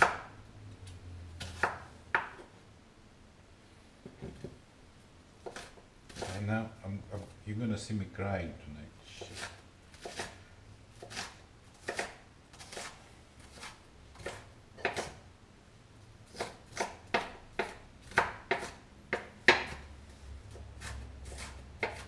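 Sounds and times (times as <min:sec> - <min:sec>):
knife chopping on wooden board: 0:00.0 - 0:00.3, 0:01.4 - 0:02.5, 0:05.4 - 0:06.4, 0:09.2 - 0:10.4, 0:11.0 - 0:15.2, 0:16.3 - 0:19.9, 0:20.5 - 0:22.0.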